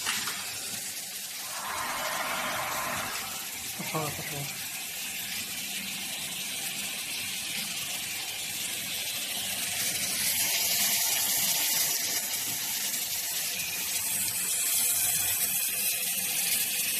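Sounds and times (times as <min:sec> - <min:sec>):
water spray jets hissing: 0:01.4 - 0:04.4.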